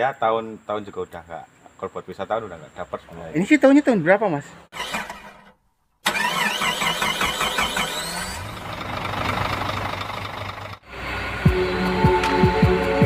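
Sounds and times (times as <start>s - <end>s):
rising sweep: 10.8s - 13.0s
background music with low beat: 11.3s - 13.0s.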